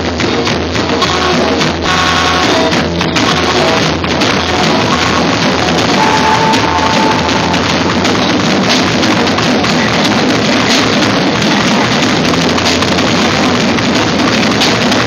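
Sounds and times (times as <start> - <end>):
rock band playing loud: 0.0 - 15.0.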